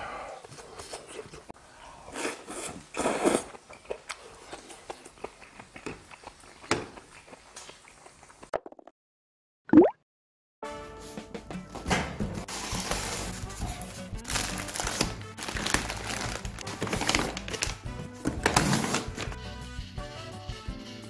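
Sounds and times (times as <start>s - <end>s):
man chewing and slurping: 0.4s - 8.5s.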